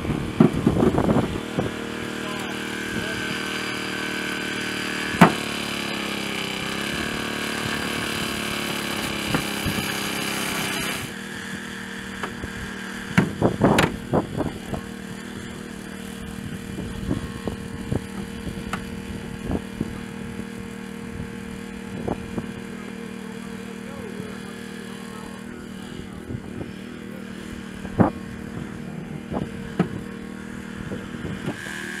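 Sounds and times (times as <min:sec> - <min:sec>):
engine running: 0:00.0 - 0:32.0
loud knocks: 0:05.2 - 0:05.5.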